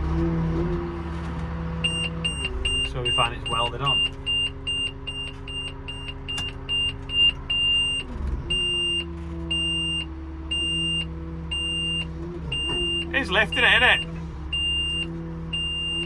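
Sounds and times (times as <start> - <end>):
warning beeper: 1.9 - 16.0.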